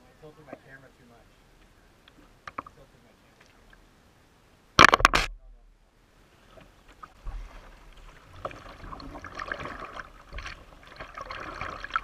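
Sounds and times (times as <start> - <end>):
water splashing against a kayak: 6.3 - 12.0.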